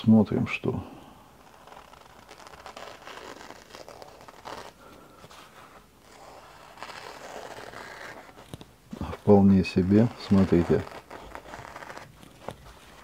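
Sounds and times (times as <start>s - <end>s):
knife slicing through paper: 1.4s - 4.8s, 6.0s - 13.0s.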